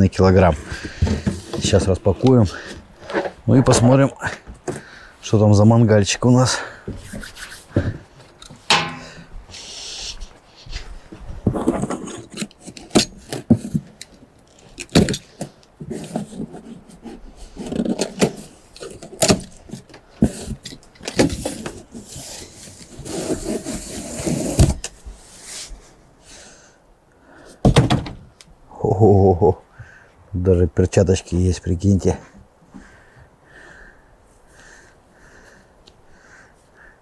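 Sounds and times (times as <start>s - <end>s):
cardboard scraping and knocking: 0.6s - 1.9s, 11.2s - 13.9s, 14.9s - 24.9s.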